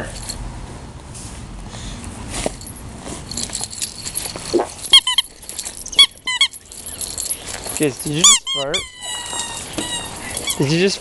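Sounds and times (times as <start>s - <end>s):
rustle and jingle of tugging: 0.0s - 1.4s, 2.0s - 11.0s
squeaky toy squeaking: 4.8s - 11.0s.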